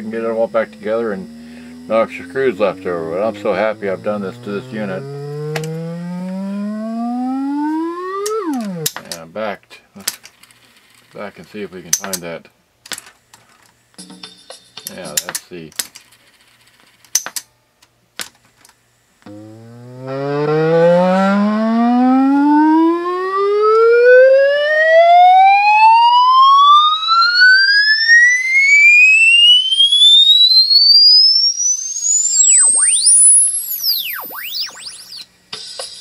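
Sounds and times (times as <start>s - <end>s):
rising test tone sweep: 0.0s - 9.0s, 19.2s - 35.3s.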